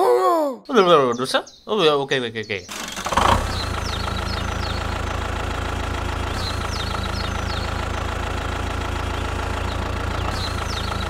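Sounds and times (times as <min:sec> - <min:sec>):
birds chirping: 0:00.7 - 0:11.0
tractor engine idling: 0:02.7 - 0:11.0.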